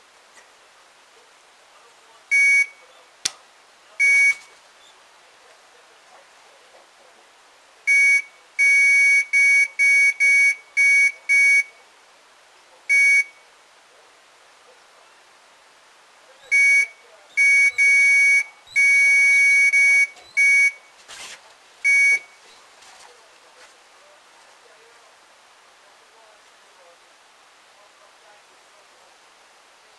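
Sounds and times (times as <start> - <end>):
electronic bite alarm bleeping: 4.0 - 4.5, 16.5 - 20.8, 21.9 - 22.3.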